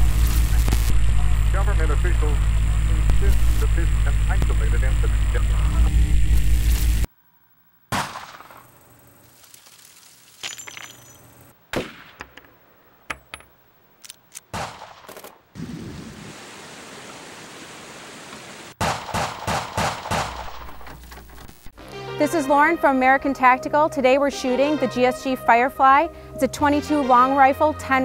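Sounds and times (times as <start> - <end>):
rifle shots: 7.9 - 8.7, 11.7 - 12.4, 14.5 - 15.4, 18.8 - 20.8
sharp bangs: 7.9 - 8.8, 11.7 - 13.6, 18.8 - 21.1.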